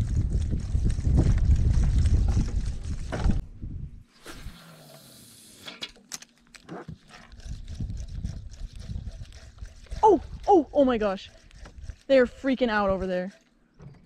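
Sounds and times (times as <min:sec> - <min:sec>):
wind buffeting microphone: 0:00.0 - 0:04.0, 0:07.4 - 0:13.2
fishing line hissing off reel: 0:04.1 - 0:05.8.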